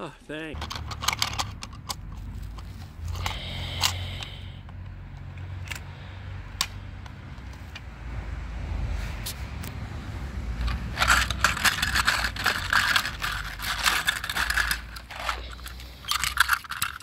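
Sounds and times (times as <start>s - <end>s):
plastic toy clicks and knocks: 0.6s - 5.9s, 10.6s - 17.0s.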